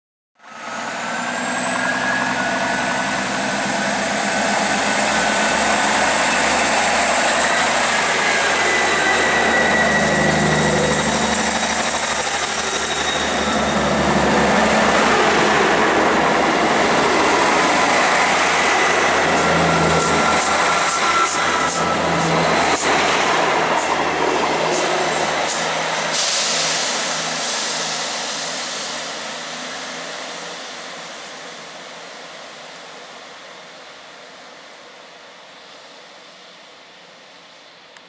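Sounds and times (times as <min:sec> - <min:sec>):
diesel train engines under power: 0:00.4 - 0:38.0
high whine: 0:01.6 - 0:28.0.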